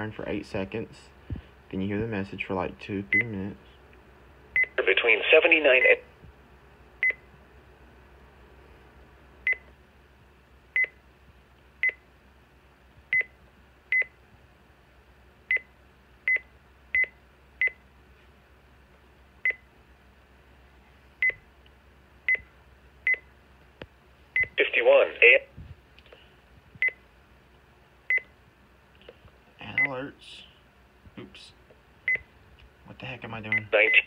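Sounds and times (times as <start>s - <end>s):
high key-press beeps: 4.6s - 4.8s, 7.0s - 7.2s, 13.1s - 13.3s, 13.9s - 14.1s, 26.8s - 27.0s, 33.5s - 34.0s.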